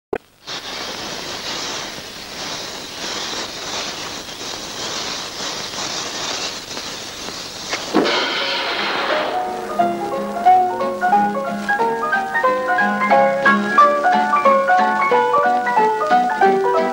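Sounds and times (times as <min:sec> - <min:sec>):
fuse hissing: 0:00.2 - 0:16.9
short bang: 0:07.9 - 0:10.4.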